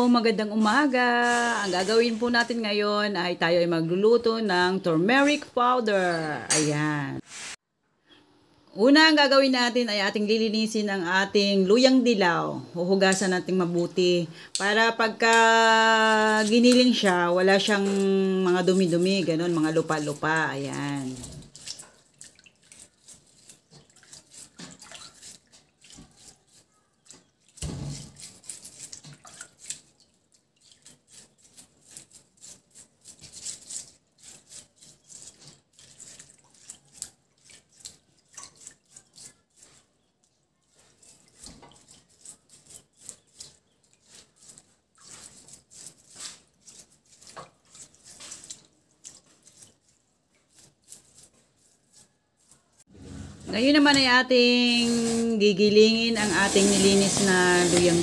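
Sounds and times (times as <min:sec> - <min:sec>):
brush scraping roots: 0:00.0 - 0:03.1, 0:04.2 - 0:07.6, 0:14.1 - 0:22.0, 0:30.8 - 0:37.1, 0:40.7 - 0:58.0
small water splashes and drips: 0:16.4 - 0:52.6.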